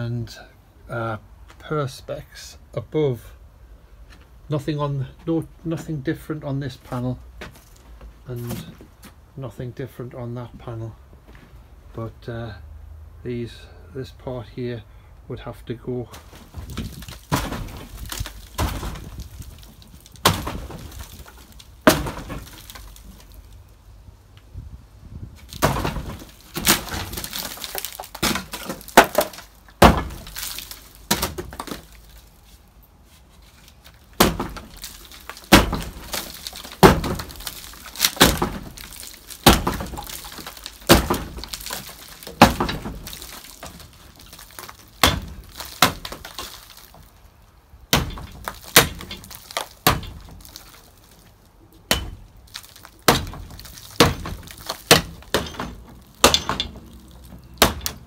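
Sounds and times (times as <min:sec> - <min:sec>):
metal bar smashing wooden planks: 0:16.2 - 0:23.3, 0:25.4 - 0:32.2, 0:34.1 - 0:47.1, 0:47.9 - 0:51.2, 0:51.9 - 0:58.0.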